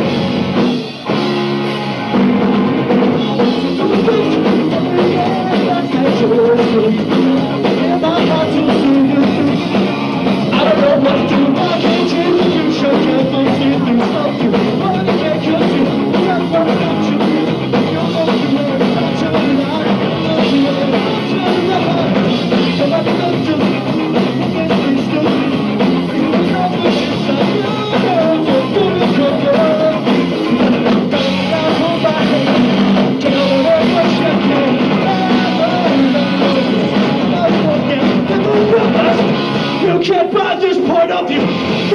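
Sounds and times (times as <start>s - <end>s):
drum kit: 0.0s - 41.9s
electric guitars: 0.0s - 41.9s
person singing: 3.1s - 30.3s, 31.1s - 41.9s.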